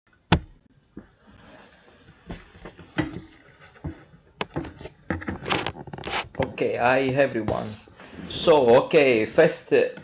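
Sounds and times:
faint background hiss: 0.2s - 10.0s.

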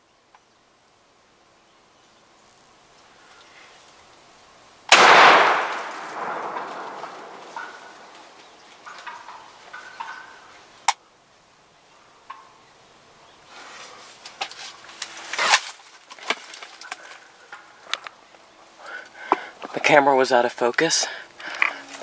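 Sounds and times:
rustling and crashing: 5.0s - 10.0s, 13.7s - 17.7s
turkeys putting and clucking: 7.5s - 11.0s, 12.1s - 12.6s.

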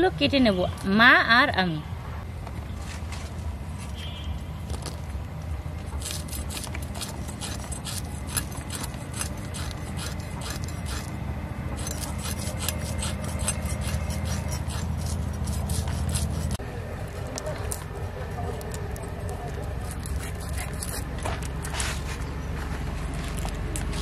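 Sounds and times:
fish scales scraping on blade: 5.9s - 11.1s, 11.8s - 16.6s, 19.2s - 22.1s.

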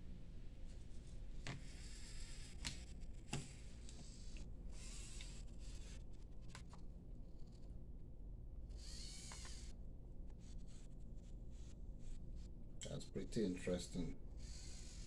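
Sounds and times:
servo motors whining: 3.4s - 6.0s, 8.7s - 9.7s, 14.4s - 15.0s.

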